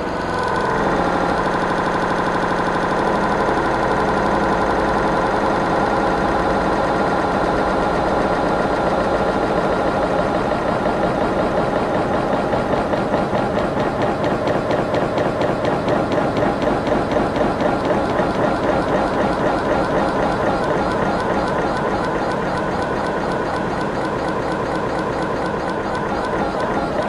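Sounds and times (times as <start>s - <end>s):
granular electronic drone: 0.0s - 27.0s.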